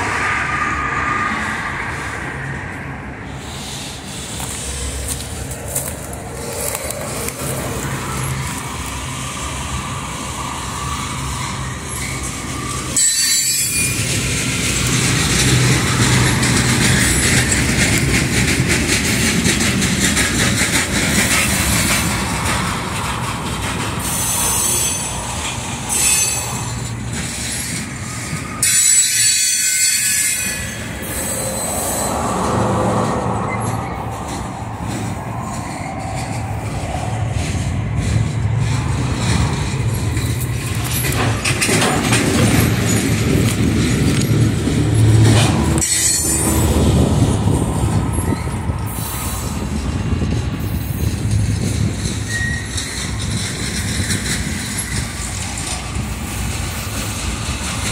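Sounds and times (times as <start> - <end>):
freight train wheels on rails: 0.0 - 57.9
high-pitched wheel squeal: 10.7 - 14.4, 24.0 - 34.5, 45.0 - 47.1, 52.2 - 53.2.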